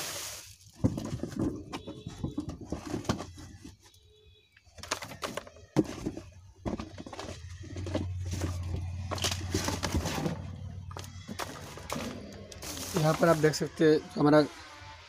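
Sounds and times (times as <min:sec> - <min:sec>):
plastic packaging crinkling: 0:04.8 - 0:13.8.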